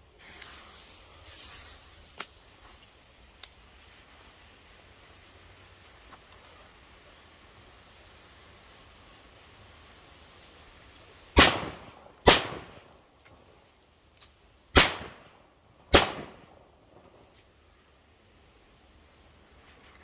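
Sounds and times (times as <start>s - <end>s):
firecracker bangs with echo: 11.4s - 12.8s, 14.7s - 15.3s, 15.9s - 16.5s.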